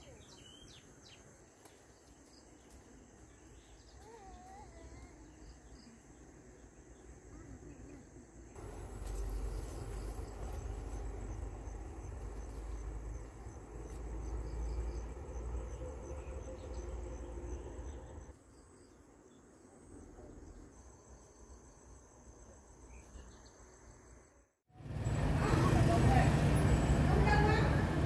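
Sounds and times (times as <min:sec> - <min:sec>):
crickets trilling: 0:08.1 - 0:24.4.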